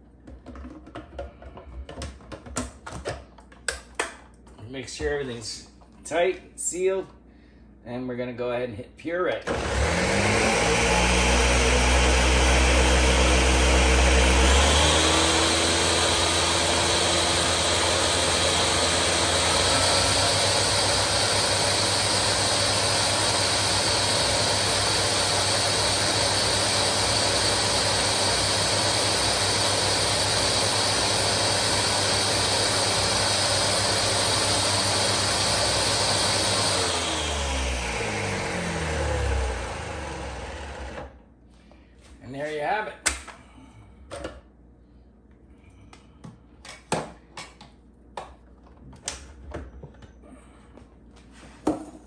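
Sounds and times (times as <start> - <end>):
blender motor running: 9.5 - 41.2.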